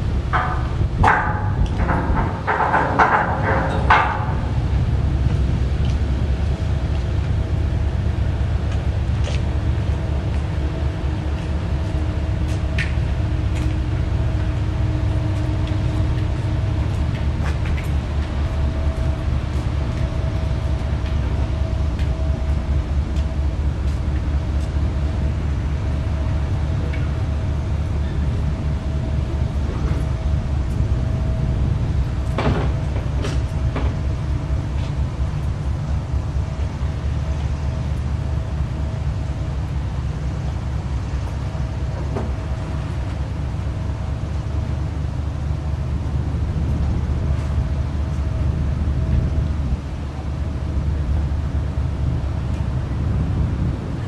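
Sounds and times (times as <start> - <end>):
ship engines rumbling: 0.0 - 54.0.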